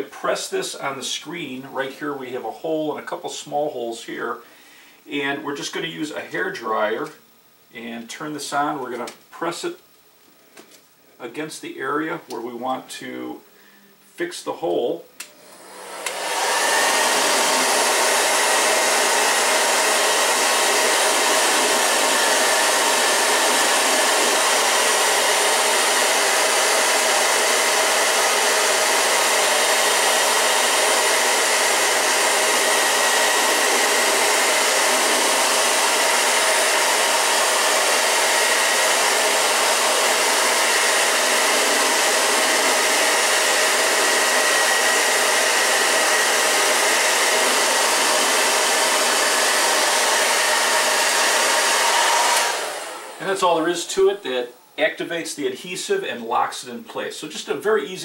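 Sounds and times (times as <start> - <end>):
hair dryer blowing air: 15.2 - 53.7.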